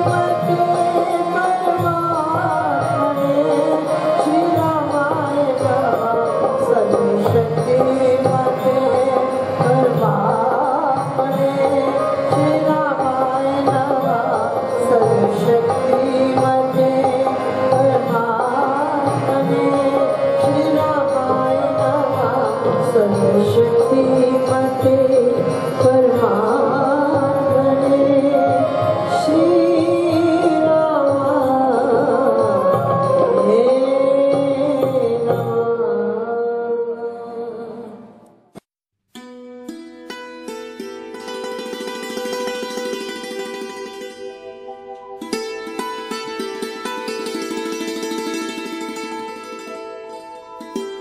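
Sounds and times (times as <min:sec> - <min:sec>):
harmonium playing: 0:00.0 - 0:35.9, 0:40.7 - 0:51.0
woman singing: 0:00.0 - 0:38.2.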